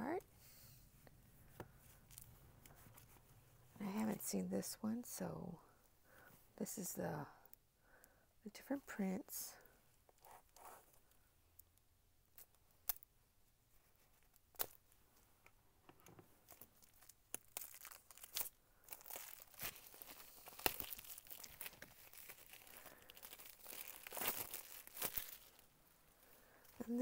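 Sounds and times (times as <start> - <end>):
plastic wrap tearing and crinkling: 16.5 - 25.7.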